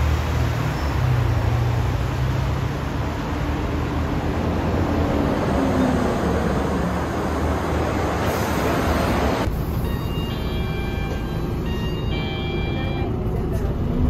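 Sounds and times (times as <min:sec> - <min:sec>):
bus engine and road noise: 0:00.0 - 0:14.0
whining note: 0:09.5 - 0:13.2
short high tones: 0:09.6 - 0:13.2.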